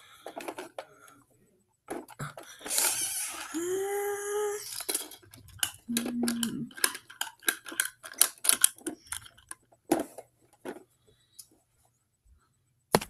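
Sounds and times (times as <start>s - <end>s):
plastic toy clicking and rattling: 0.2s - 0.9s, 1.9s - 3.6s, 4.6s - 10.8s.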